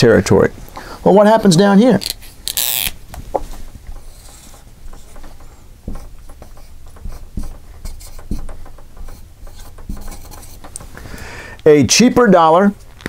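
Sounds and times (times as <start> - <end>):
soft knocks: 3.2 - 11.0
marker writing on whiteboard: 3.4 - 11.0.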